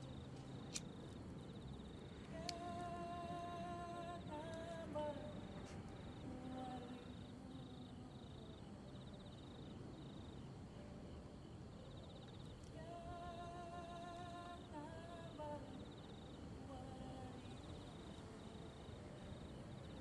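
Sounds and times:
hum-like soundtrack notes: 0.0s - 20.0s
insects chirping: 0.0s - 20.0s
faint click: 2.2s - 2.8s.

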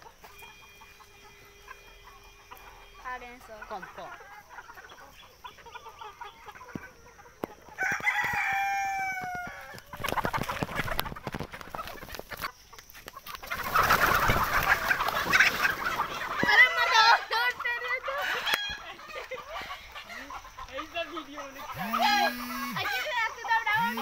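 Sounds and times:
chickens clucking: 0.0s - 24.0s
rooster crowing: 7.7s - 9.9s, 18.1s - 19.3s, 21.7s - 24.0s
wings flapping and scratching: 9.2s - 17.8s.

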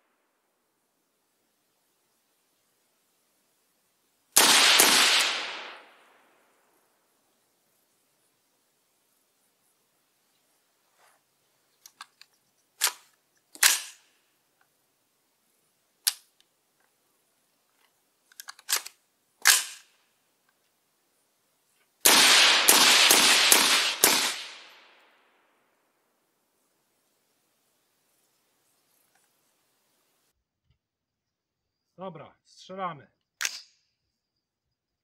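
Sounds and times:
suppressed rifle shots: 4.4s - 6.1s, 13.6s - 14.0s, 18.7s - 19.9s, 22.0s - 25.0s.

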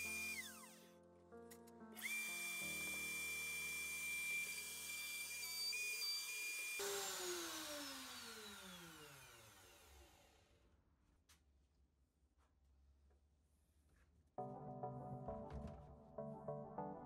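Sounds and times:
electric router whining: 0.0s - 0.9s, 2.0s - 10.5s.

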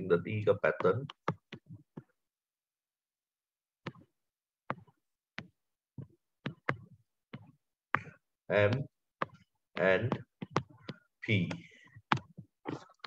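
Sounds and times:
pen tapping on tablet: 8.7s - 12.4s.

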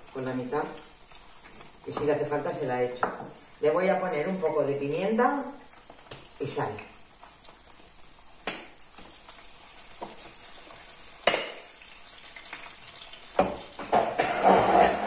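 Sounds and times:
onions sizzling in pan: 0.0s - 15.0s.

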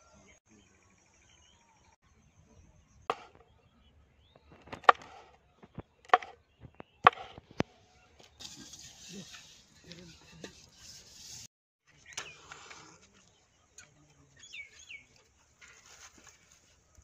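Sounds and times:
knife chopping on wooden board: 3.1s - 3.3s, 4.8s - 5.2s, 6.1s - 6.3s, 7.0s - 7.4s.

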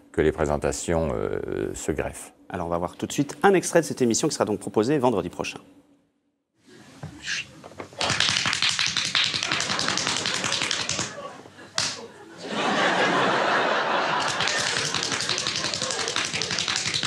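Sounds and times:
many hands applauding: 8.0s - 11.2s, 14.1s - 17.0s.

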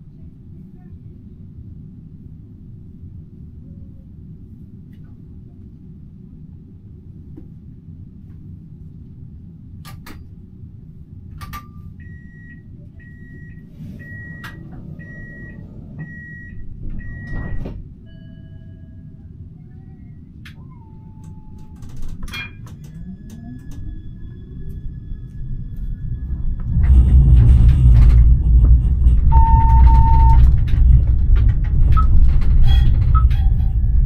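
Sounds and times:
low hum in tram cab: 0.0s - 34.0s
high warning beep: 29.3s - 30.5s.

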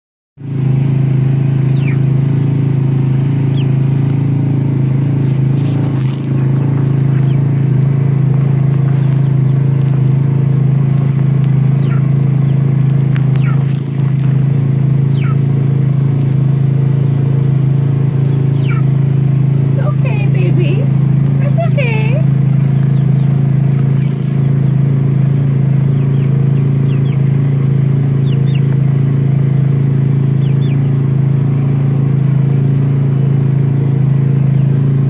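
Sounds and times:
low motor hum: 0.4s - 35.0s
chicks peeping: 1.6s - 2.1s, 3.4s - 10.2s, 10.9s - 16.3s, 18.2s - 19.0s, 21.5s - 24.9s, 25.8s - 28.8s, 30.2s - 31.0s.

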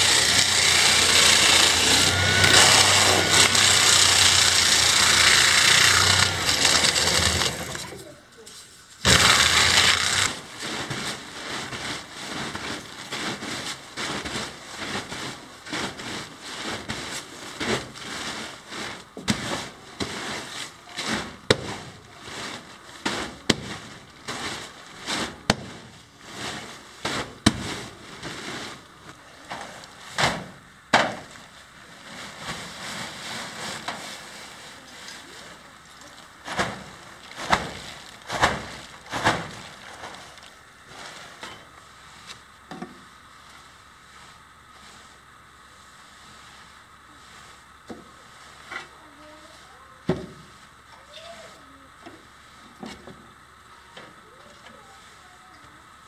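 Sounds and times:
plastic bag crinkling and crackling: 31.3s - 41.8s.

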